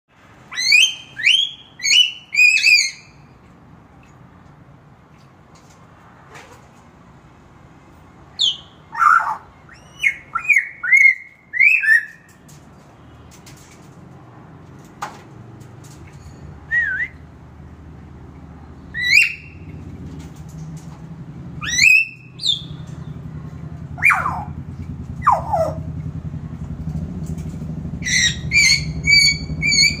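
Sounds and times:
myna whistled calls: 0.5 - 3.2, 8.4 - 12.3, 18.9 - 19.7, 21.6 - 22.8, 24.0 - 24.5, 28.0 - 30.0.

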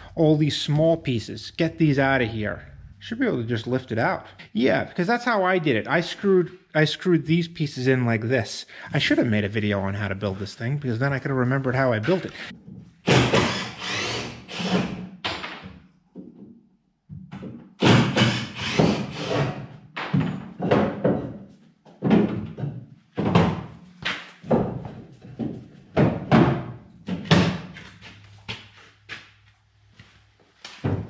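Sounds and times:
wooden boards knocking and thudding: 20.0 - 21.4, 22.0 - 28.0, 30.8 - 31.0.

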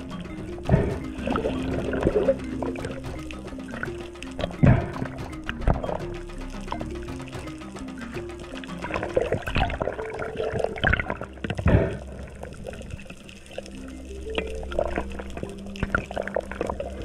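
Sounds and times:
scattered clicks: 0.0 - 11.6
bubbles: 0.0 - 17.0
soft background music: 0.0 - 17.0
underwater water movement: 0.0 - 17.0.

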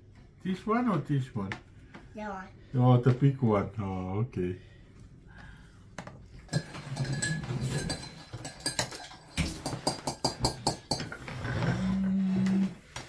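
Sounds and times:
cutlery clinking on plates: 6.5 - 11.3.

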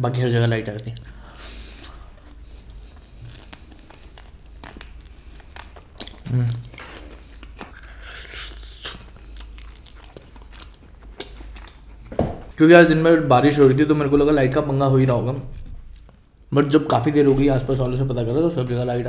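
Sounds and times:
biting and chewing: 0.8 - 12.6.

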